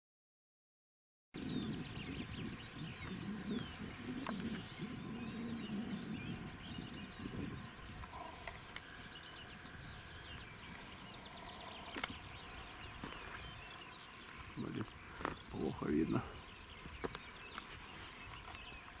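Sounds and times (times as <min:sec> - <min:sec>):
small birds singing and chirping: 0:01.4 - 0:19.0
sharp clicks: 0:11.9 - 0:12.2.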